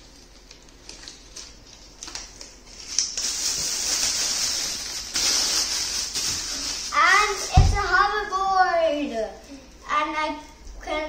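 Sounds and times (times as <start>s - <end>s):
plastic wrapping crinkling: 0.0s - 8.2s.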